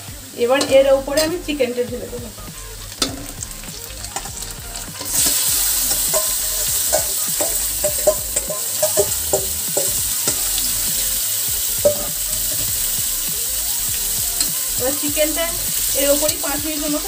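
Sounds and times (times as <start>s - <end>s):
chicken sizzling in hot oil: 0.0s - 17.0s
metal spatula scraping a pan: 2.8s - 13.0s.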